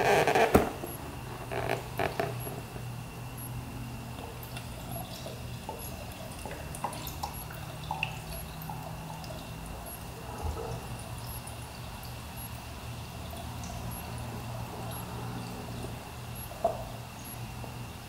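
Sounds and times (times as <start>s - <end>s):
steady low hum: 0.0s - 18.0s
oil glugging and dripping: 0.1s - 18.0s.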